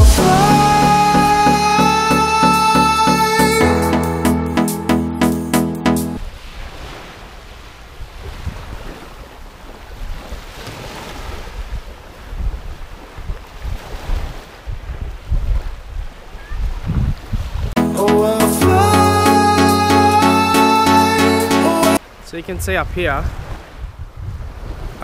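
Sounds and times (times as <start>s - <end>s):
small waves washing on sand: 6.3s - 16.4s
wind gusting on microphone: 11.5s - 17.8s, 22.5s - 25.0s.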